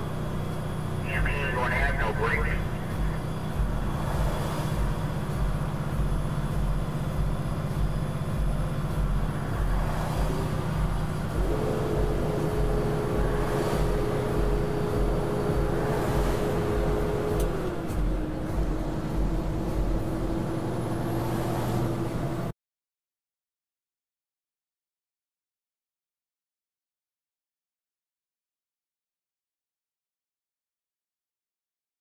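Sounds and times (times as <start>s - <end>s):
steady whine: 0.0s - 21.1s
truck road and engine rumble: 0.0s - 22.6s.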